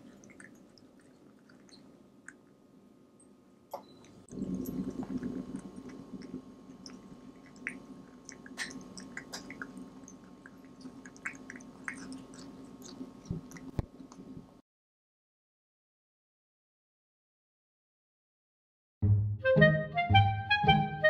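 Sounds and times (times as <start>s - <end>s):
kitten chewing food: 0.0s - 2.7s, 3.9s - 14.6s
steady low hum: 0.0s - 14.6s.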